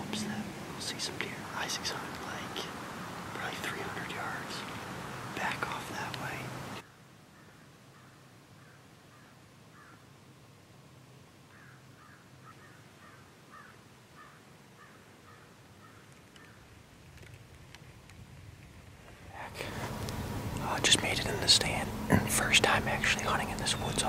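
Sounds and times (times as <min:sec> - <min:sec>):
crow cawing: 0:07.3 - 0:10.0, 0:11.5 - 0:16.6.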